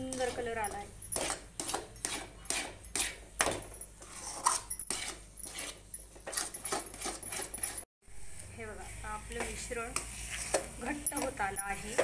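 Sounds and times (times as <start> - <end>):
spoon scraping metal pan: 4.0 - 7.8, 9.8 - 12.0.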